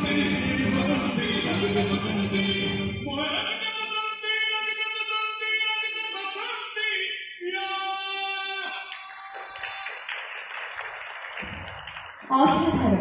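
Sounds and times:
several voices singing: 0:00.0 - 0:03.2.

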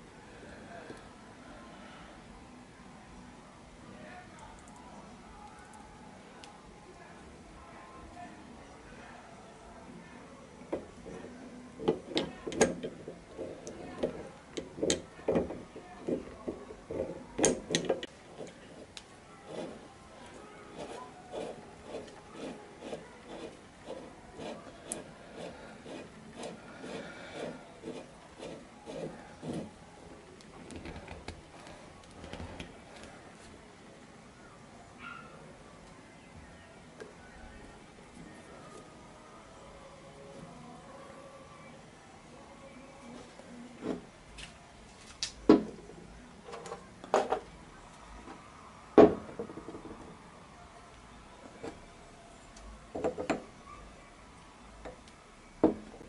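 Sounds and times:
lathe handwheel scraping: 0:11.8 - 0:29.8.

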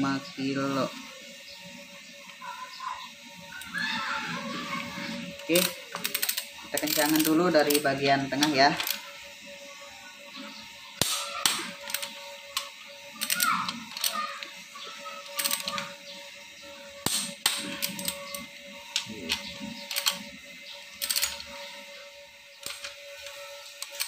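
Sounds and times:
torque wrench ratcheting and clicking: 0:04.8 - 0:09.3, 0:10.9 - 0:16.3, 0:17.0 - 0:24.0.

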